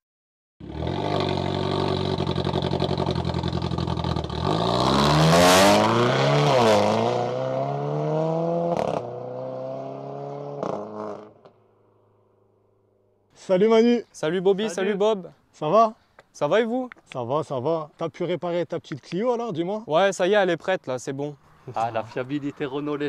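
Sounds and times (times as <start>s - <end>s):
car engine revving: 0.6s - 11.5s.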